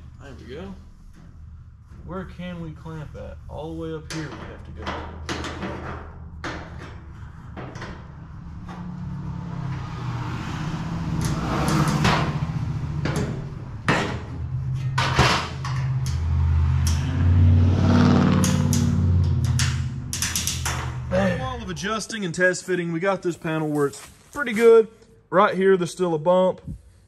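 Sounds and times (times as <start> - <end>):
low droning hum: 0.0 - 9.9, 11.9 - 22.4.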